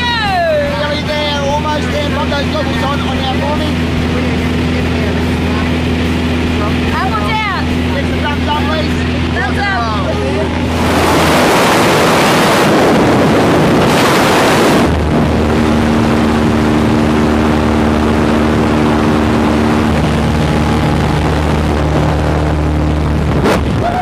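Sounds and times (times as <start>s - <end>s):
plane engine and propeller drone: 0.0s - 24.0s
wind rushing: 10.6s - 24.0s.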